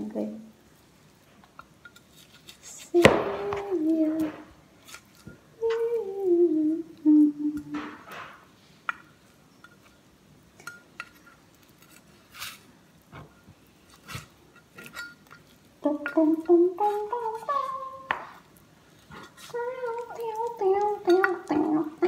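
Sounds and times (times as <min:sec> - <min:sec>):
woman humming: 0:02.9 - 0:04.4, 0:05.6 - 0:08.0, 0:15.8 - 0:18.1, 0:19.5 - 0:22.0.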